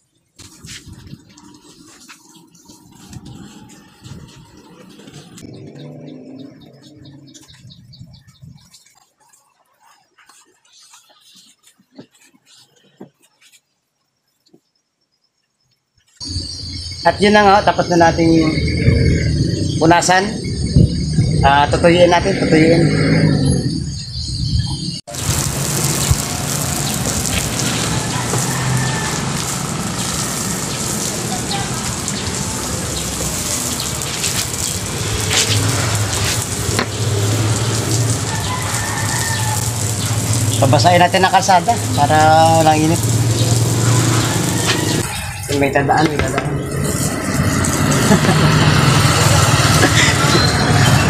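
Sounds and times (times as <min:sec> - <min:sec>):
water spraying onto concrete: 0:00.3 - 0:07.8, 0:16.3 - 0:23.3, 0:25.1 - 0:51.0.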